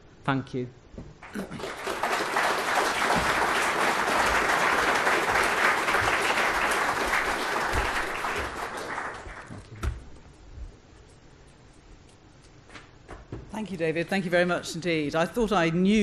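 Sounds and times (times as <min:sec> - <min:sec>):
audience applauding: 0:01.2 - 0:09.8.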